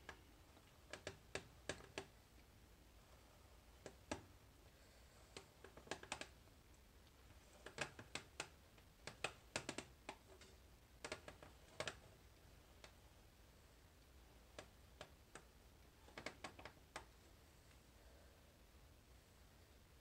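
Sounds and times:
faint sharp clicks and taps: 0:00.0 - 0:02.6, 0:03.8 - 0:13.1, 0:13.9 - 0:17.9.

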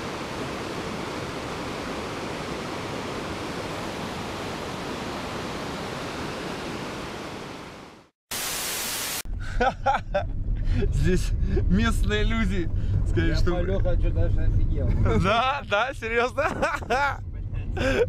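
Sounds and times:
river rushing: 0:00.0 - 0:08.1.

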